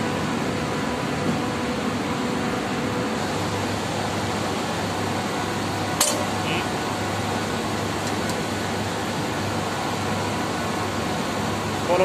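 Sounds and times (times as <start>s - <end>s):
fan machinery humming: 0.0s - 12.0s
sharp metal click: 6.0s - 6.3s.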